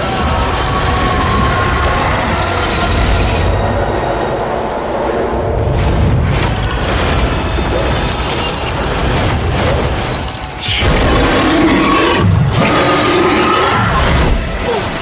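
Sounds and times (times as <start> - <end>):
dramatic action music: 0.0 - 15.0
battle booms and crashes: 5.6 - 12.6.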